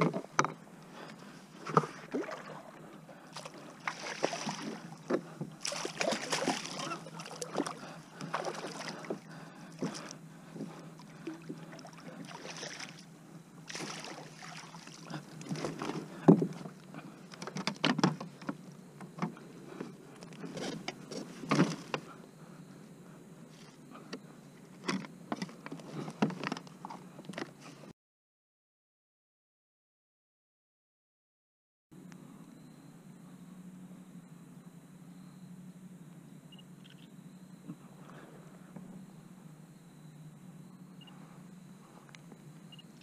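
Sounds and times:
water splashing: 1.6 - 10.1, 11.0 - 16.0.

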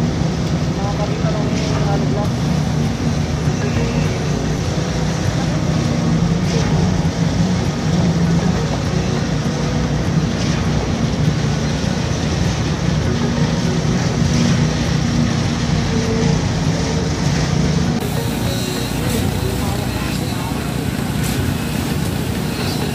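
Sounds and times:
concrete pump engine running: 0.0 - 22.9.

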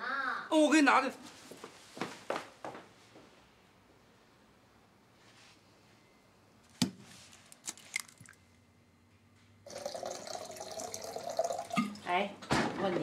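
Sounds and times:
tap water running: 9.7 - 12.1.

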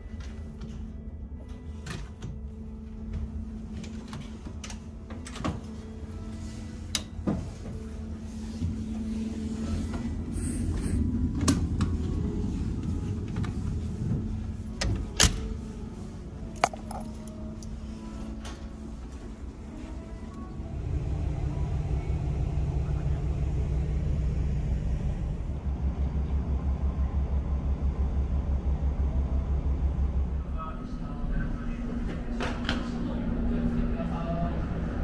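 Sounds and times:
low engine hum: 7.7 - 35.0.

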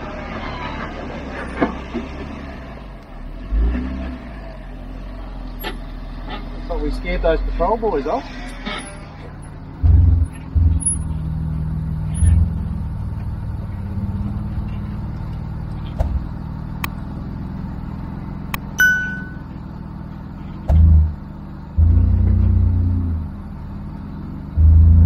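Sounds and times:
car engine at low revs: 0.0 - 25.0
short ringing ding: 18.8 - 19.5.

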